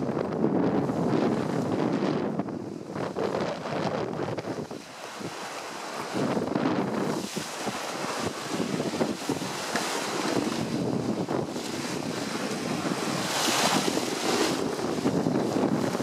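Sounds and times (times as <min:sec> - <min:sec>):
water rushing along hull: 0:00.0 - 0:16.0
wind buffeting microphone: 0:00.0 - 0:16.0.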